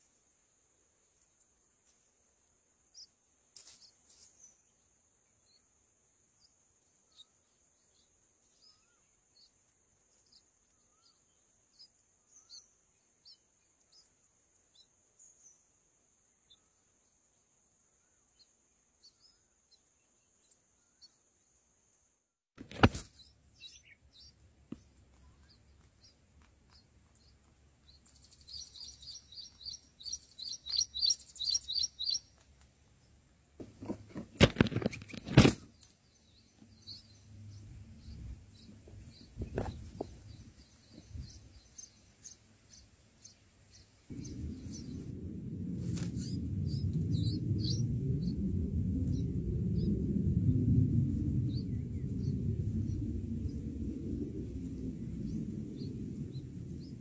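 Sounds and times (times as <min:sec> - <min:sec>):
bird chirps: 0:06.4 - 0:15.7, 0:22.7 - 0:32.4, 0:34.6 - 0:45.1, 0:46.1 - 0:48.4
low rumbling noise: 0:36.3 - 0:42.2, 0:44.0 - 0:57.0.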